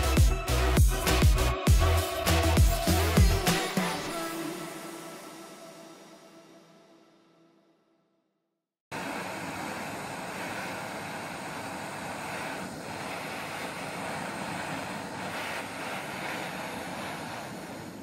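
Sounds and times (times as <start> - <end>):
heat gun blowing air: 0.0 - 6.1, 8.9 - 18.0.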